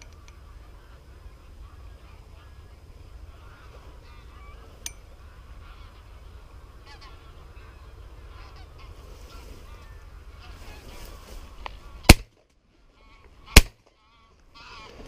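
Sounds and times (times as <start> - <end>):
steady low rumble: 0.0 - 14.8
geese honking: 0.1 - 12.2, 12.8 - 15.0.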